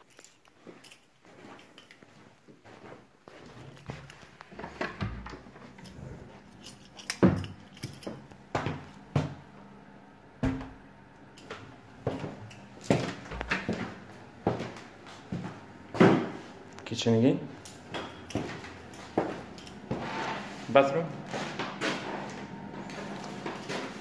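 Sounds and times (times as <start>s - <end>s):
footsteps on wooden floor: 7.2s - 9.5s, 11.4s - 16.6s, 17.8s - 24.0s.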